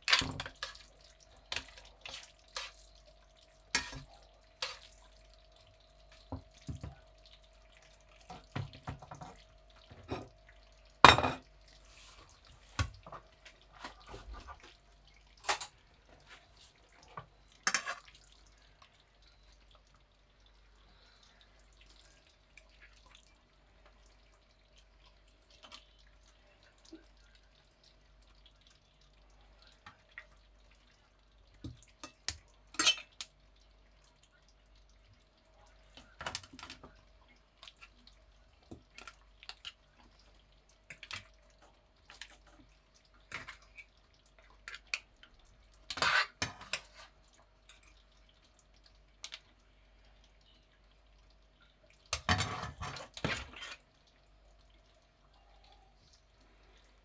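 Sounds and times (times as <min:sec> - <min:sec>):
faint steady hum: 0:00.0 - 0:57.0
fork scraping a ceramic plate: 0:45.9 - 0:47.0.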